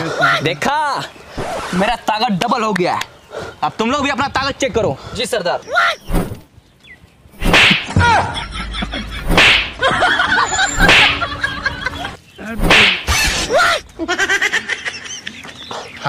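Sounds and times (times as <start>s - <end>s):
slaps to the face: 7.4s - 8.0s, 9.3s - 9.8s, 10.8s - 11.2s, 12.6s - 13.2s.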